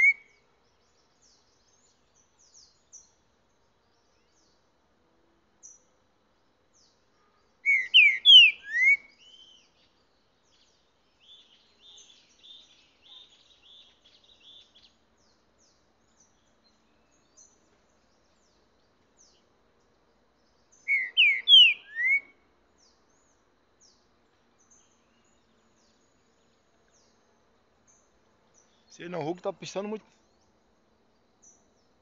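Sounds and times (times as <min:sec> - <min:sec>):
bird singing whistled notes: 0:00.0 - 0:03.2, 0:06.7 - 0:18.6, 0:20.4 - 0:24.0
faint high chirps: 0:00.0 - 0:03.2, 0:20.4 - 0:23.4
distant bird twittering: 0:00.0 - 0:04.6, 0:06.8 - 0:19.5, 0:20.1 - 0:32.0.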